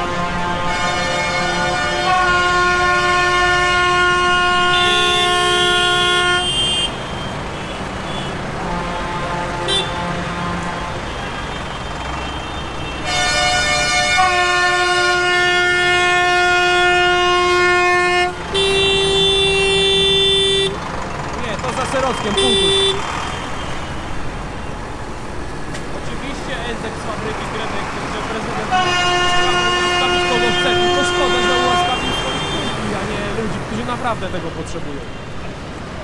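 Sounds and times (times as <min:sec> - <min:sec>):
tractor horns blasting: 0:00.0 - 0:21.0, 0:21.7 - 0:24.2, 0:28.0 - 0:33.0.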